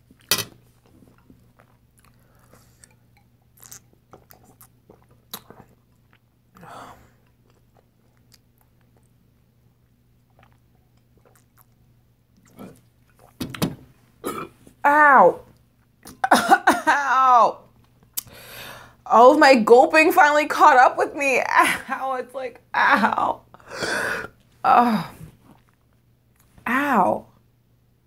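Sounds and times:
person chewing: 0.0 - 13.4, 25.4 - 26.6
person gulping drink: 0.1 - 9.2, 10.2 - 13.5, 14.2 - 14.6
breathy sound: 23.6 - 25.2.

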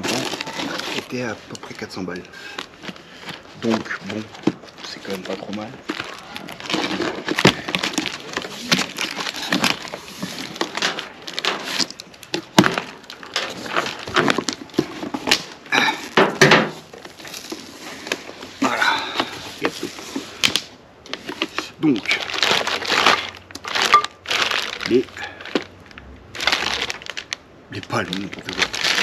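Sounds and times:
cardboard box being opened: 0.0 - 1.8, 2.7 - 15.4.

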